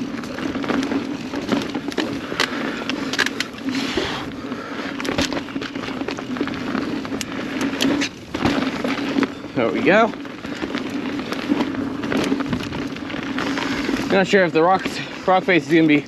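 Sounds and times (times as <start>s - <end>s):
bike knocking and rattling: 0.0s - 16.0s
bike tyres rumbling over dirt: 0.0s - 16.0s.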